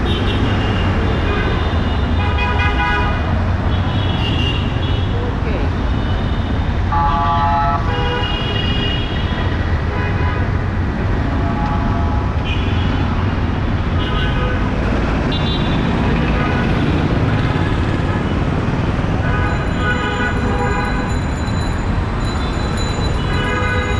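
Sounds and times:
rumble of passing cars: 0.0s - 23.9s
vehicle horns honking: 6.1s - 10.6s, 19.2s - 21.2s, 23.2s - 23.9s.

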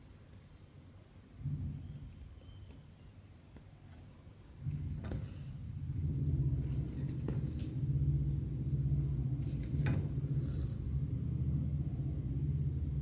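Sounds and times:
steady low rumble: 1.2s - 2.4s, 4.5s - 13.0s.

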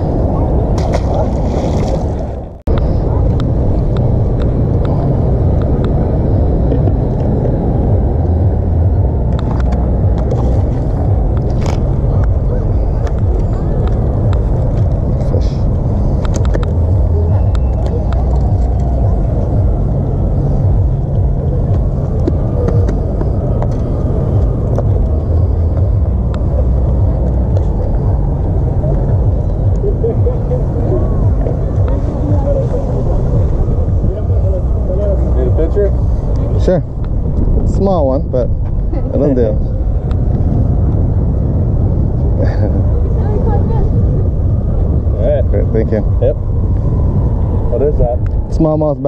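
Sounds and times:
wind rumble on microphone: 0.0s - 49.0s
fish splashing into water: 0.8s - 2.4s.

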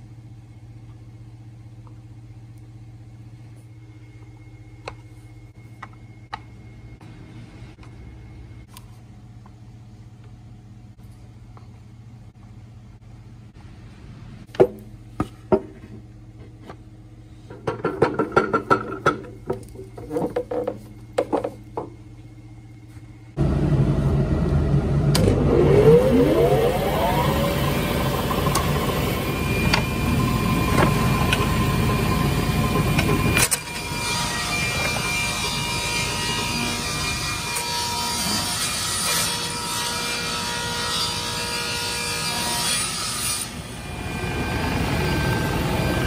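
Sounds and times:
low machine hum: 0.0s - 38.1s, 43.7s - 46.0s
woodworking machine motor whine: 23.4s - 38.4s, 43.5s - 46.0s.

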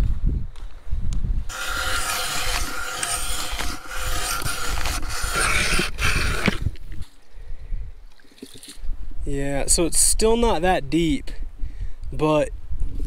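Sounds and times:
ice auger motor whine: 1.5s - 6.6s
auger blades grinding ice: 1.5s - 6.8s.

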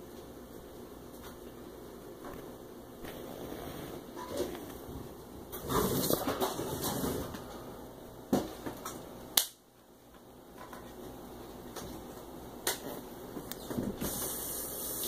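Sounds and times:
steady low hiss: 0.0s - 15.0s.

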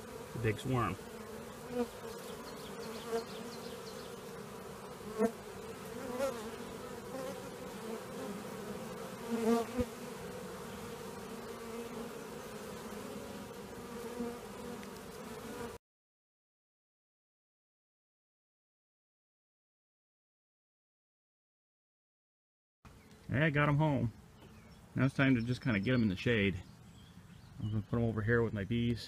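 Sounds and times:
honeybees buzzing: 0.0s - 15.8s.

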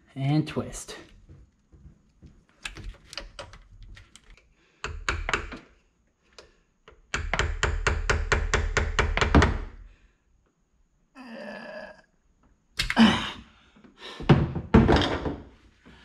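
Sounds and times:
screwdriver knocking on metal: 4.8s - 5.6s.

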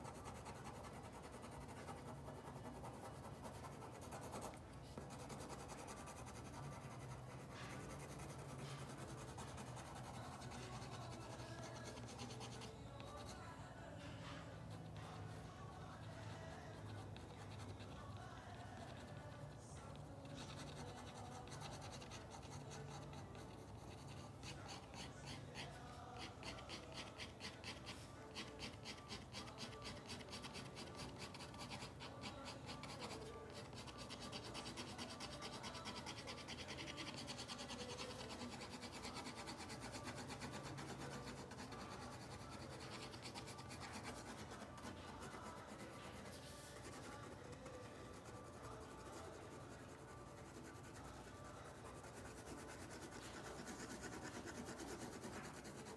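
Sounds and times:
pen scratching on paper: 0.0s - 13.4s, 16.7s - 55.9s.

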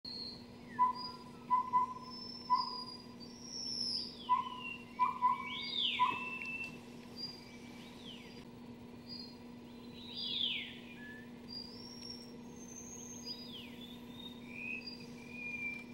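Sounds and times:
owlet whistled hoots: 0.1s - 8.3s, 9.9s - 15.9s
songbird whistles: 0.1s - 8.4s, 9.1s - 15.9s.

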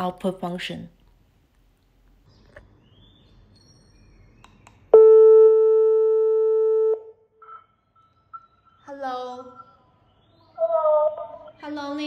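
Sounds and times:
electronic calling tone: 5.0s - 7.8s.

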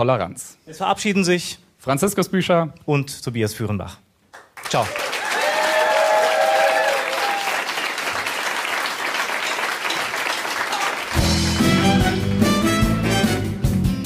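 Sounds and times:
audience applauding: 4.4s - 12.1s
live band playing: 10.7s - 14.0s.

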